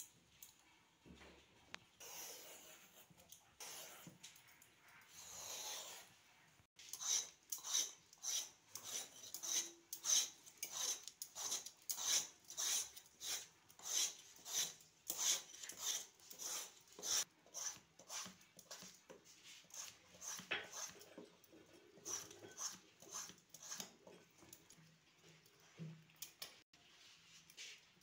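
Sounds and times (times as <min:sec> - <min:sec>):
vegetable peeler scraping: 0:02.0 - 0:04.4, 0:05.0 - 0:06.2, 0:06.8 - 0:24.3.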